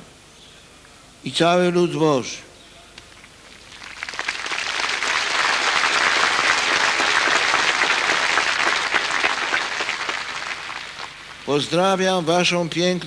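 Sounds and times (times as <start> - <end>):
large crowd applauding: 3.5 - 11.6.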